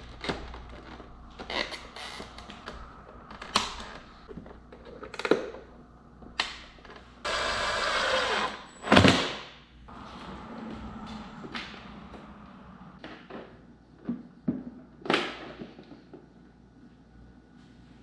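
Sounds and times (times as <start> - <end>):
scraping noise: 9.9 - 13.0.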